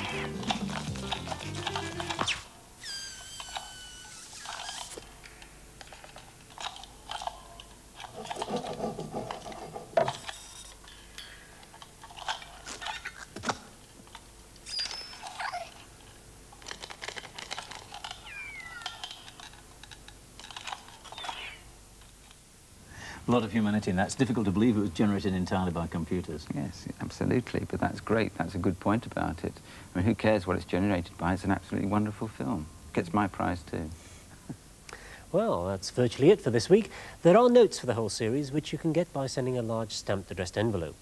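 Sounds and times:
squeaky creaks: 0.0s - 5.1s, 14.6s - 15.7s, 17.8s - 19.6s.

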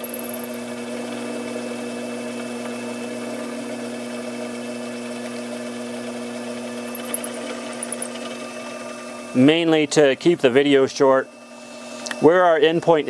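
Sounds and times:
milling machine motor humming: 0.0s - 9.5s.

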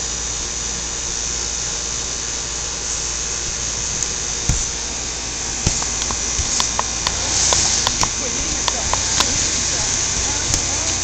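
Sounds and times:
air conditioner whirring hum: 0.0s - 11.0s
inflatable toy thumps: 4.0s - 11.0s.

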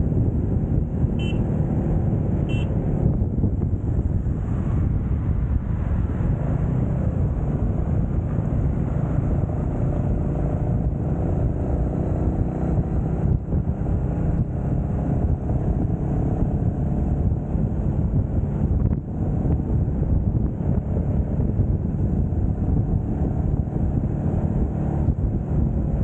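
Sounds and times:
motorcycle engine cruising: 0.0s - 26.0s
wind rush on microphone: 0.0s - 26.0s.

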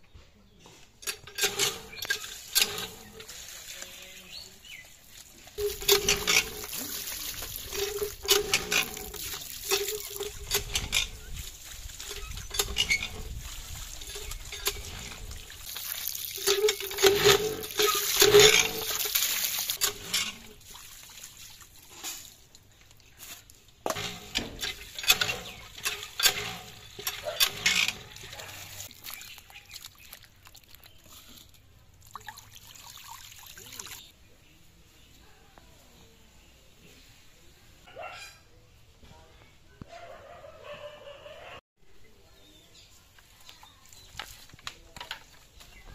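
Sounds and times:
water splashing into steel bowl: 5.5s - 23.2s, 32.0s - 34.1s.

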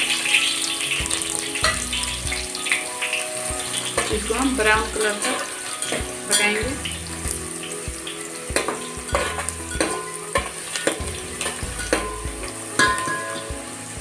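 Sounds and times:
onions sizzling in oil: 0.0s - 14.0s
spatula scraping and tapping pot: 8.5s - 13.4s.

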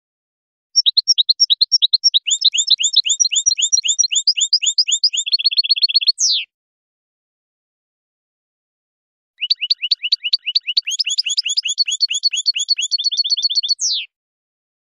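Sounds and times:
goldfinch singing: 0.8s - 6.5s, 9.4s - 14.1s.

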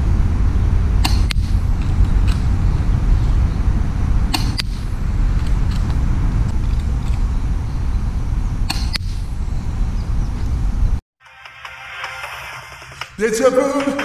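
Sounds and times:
wind rumble on microphone: 0.0s - 11.0s
airsoft pistol shots snapping: 1.0s - 1.6s, 4.3s - 4.9s, 8.7s - 9.1s.

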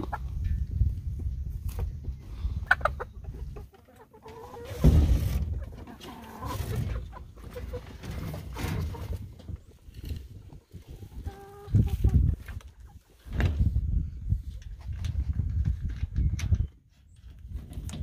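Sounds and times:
chickens clucking: 0.0s - 13.3s.

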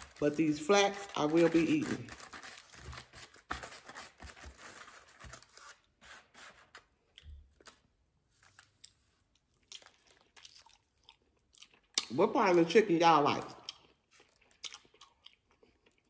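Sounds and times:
packaging rustling and tearing: 0.0s - 6.9s.

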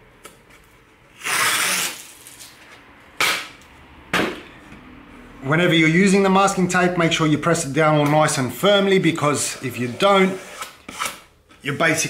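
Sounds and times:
masking tape ripping off roll: 1.1s - 2.6s.

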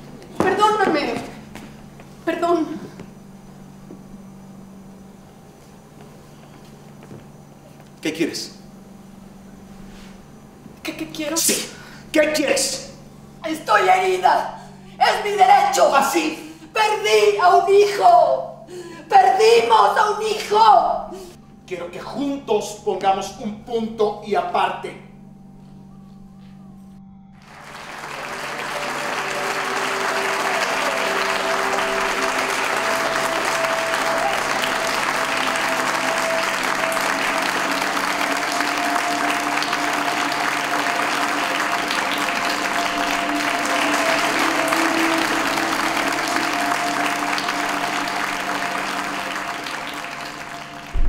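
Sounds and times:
music with sustained tones: 0.0s - 51.0s
audience applauding: 27.4s - 51.0s.

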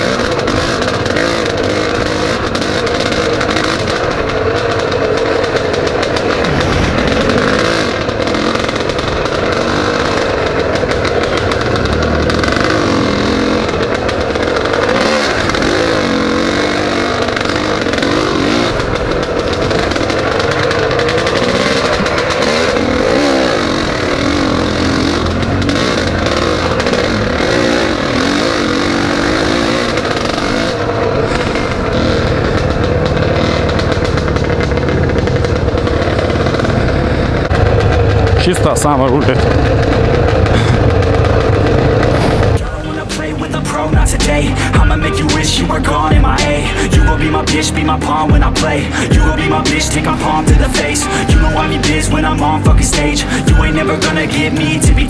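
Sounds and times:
motorbike engine revving: 0.0s - 55.0s.

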